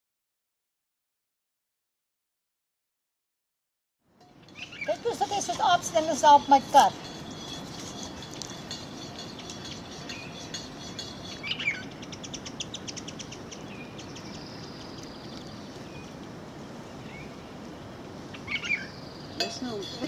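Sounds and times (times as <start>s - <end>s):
small birds chirping: 4.3s - 20.0s.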